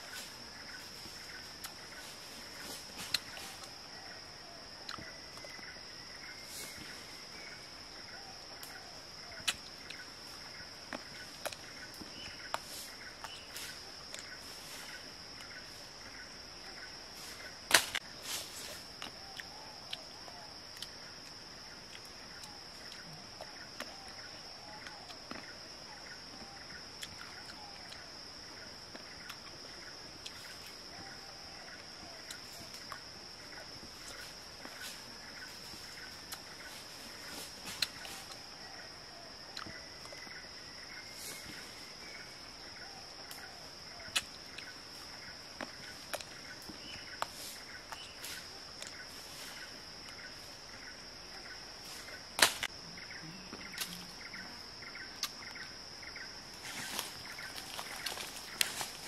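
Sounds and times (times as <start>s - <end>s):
insects buzzing: 0.0s - 59.0s
fruit being chewed: 55.2s - 55.4s.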